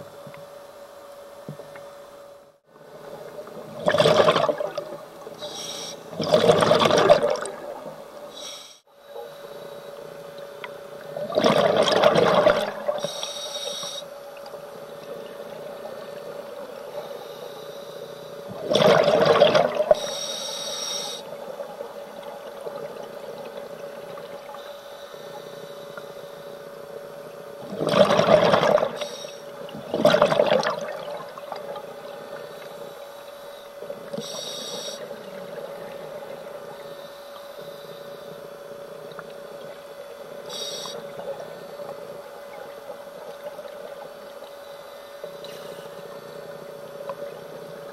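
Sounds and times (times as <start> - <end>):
steady hum: 0.0 - 47.9
exhaled bubbles bursting: 3.7 - 5.0, 6.2 - 7.9, 11.2 - 13.0, 18.6 - 20.0, 27.7 - 29.0, 29.7 - 31.7
regulator inhale hiss: 5.4 - 6.1, 8.3 - 10.2, 12.9 - 14.2, 16.9 - 18.5, 19.9 - 21.4, 24.5 - 27.0, 29.0 - 29.5, 32.4 - 35.2, 36.6 - 38.5, 40.4 - 42.1, 44.5 - 46.7.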